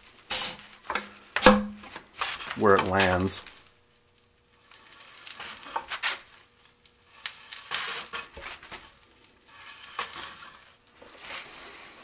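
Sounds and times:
gloved hands rubbing and scraping: 0:02.1 - 0:03.3, 0:07.1 - 0:12.0.

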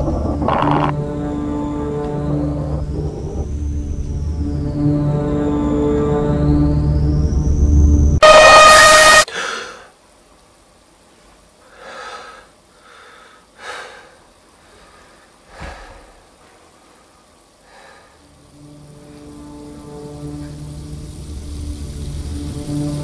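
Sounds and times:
low steady drone: 0:00.0 - 0:09.3, 0:14.0 - 0:23.0
harsh blast with ringing tones: 0:00.8 - 0:09.3
person breathing heavily and gasping: 0:09.3 - 0:10.0, 0:11.7 - 0:16.3.

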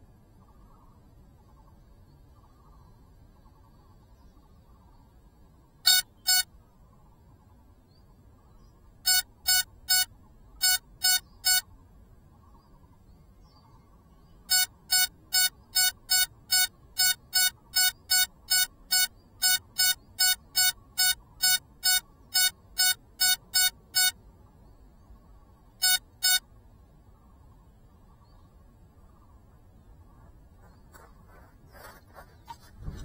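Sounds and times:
short high electronic beeps: 0:05.9 - 0:06.5, 0:09.0 - 0:11.7, 0:14.5 - 0:24.2, 0:25.8 - 0:26.5.

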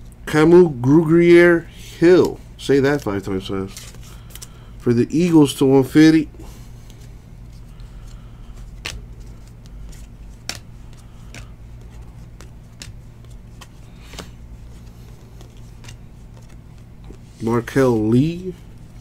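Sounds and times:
steady low hum: 0:00.0 - 0:19.0
cards sliding and flipping: 0:02.2 - 0:04.6, 0:06.5 - 0:19.0
card edges clicking: 0:07.7 - 0:17.7.

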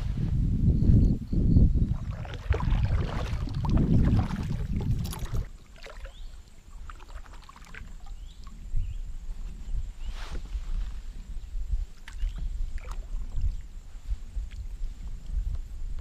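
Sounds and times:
paddle splashing water: 0:01.9 - 0:08.6, 0:12.0 - 0:13.7.

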